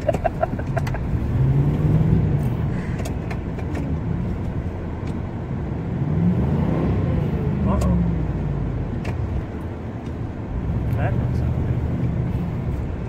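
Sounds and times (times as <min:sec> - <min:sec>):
truck engine revving: 0:00.0 - 0:09.6.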